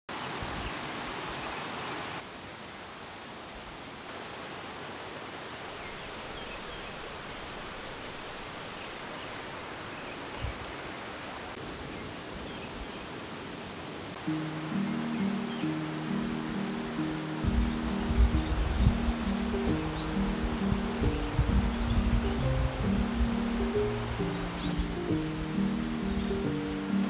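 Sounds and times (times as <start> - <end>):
stream rushing over rocks: 0.1 - 27.0
low bump: 17.4 - 23.5.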